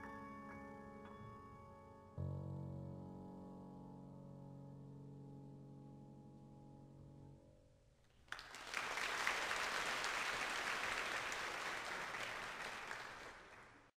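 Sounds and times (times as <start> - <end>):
audience applauding: 8.3 - 13.9.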